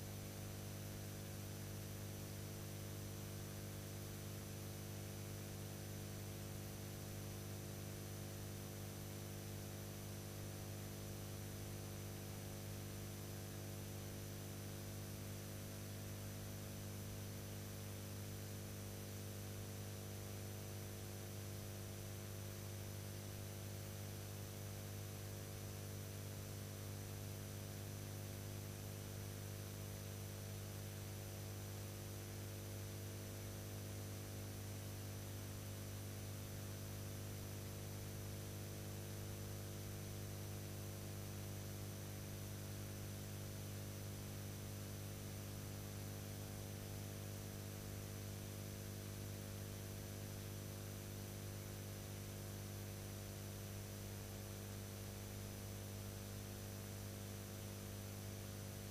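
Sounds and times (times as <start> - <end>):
electrical mains hum: 0.0 - 1.8, 57.3 - 58.9.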